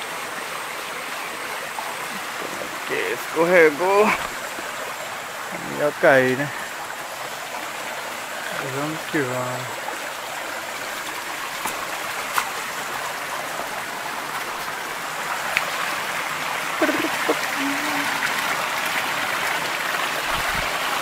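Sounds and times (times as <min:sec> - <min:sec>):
stream flowing over rocks: 0:00.0 - 0:21.0
brief voice-like sound: 0:16.8 - 0:18.2.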